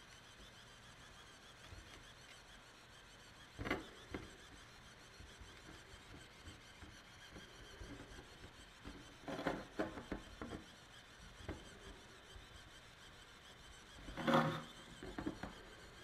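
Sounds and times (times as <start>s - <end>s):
pen tip scraping on mat: 14.0s - 15.8s.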